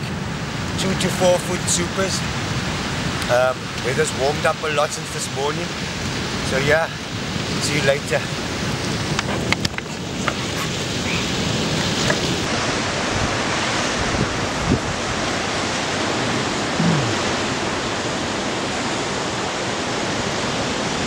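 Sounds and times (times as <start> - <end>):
ocean surf breaking on rocks: 0.0 - 21.0.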